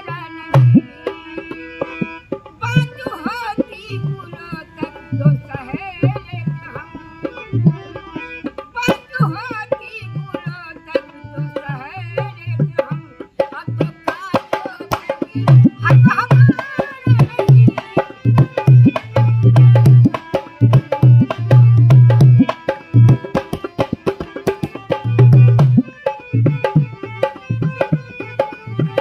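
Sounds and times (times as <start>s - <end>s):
woman singing: 0.0s - 1.2s, 2.6s - 7.6s, 8.7s - 21.5s
harmonium chords: 0.0s - 29.0s
hand drum playing: 0.5s - 1.1s, 13.7s - 29.0s.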